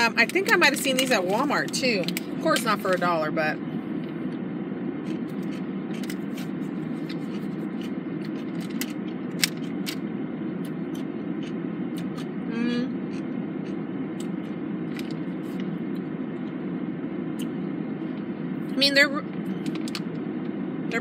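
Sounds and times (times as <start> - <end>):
car air conditioning hum: 0.0 - 21.0
pickle being chewed: 5.0 - 10.0, 10.6 - 16.6.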